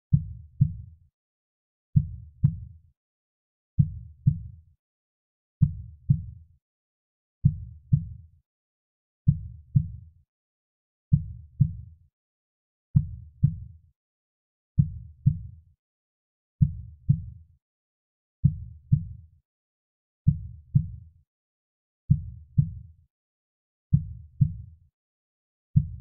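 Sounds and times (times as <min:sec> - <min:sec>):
slow soft heartbeat: 0:02.0 - 0:02.7, 0:03.8 - 0:04.5, 0:09.3 - 0:10.0, 0:11.1 - 0:11.9, 0:13.0 - 0:13.7, 0:14.8 - 0:15.5, 0:16.6 - 0:17.4, 0:18.4 - 0:19.2, 0:20.3 - 0:21.0, 0:22.1 - 0:22.9, 0:23.9 - 0:24.7, 0:25.8 - 0:26.0.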